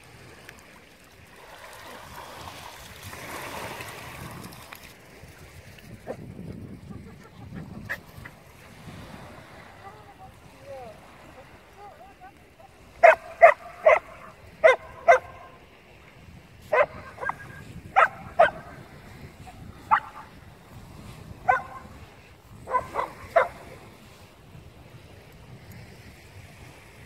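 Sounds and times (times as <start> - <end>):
dog barking: 13.0 - 15.6, 16.7 - 18.8, 19.9 - 20.3, 21.4 - 21.8, 22.7 - 23.6.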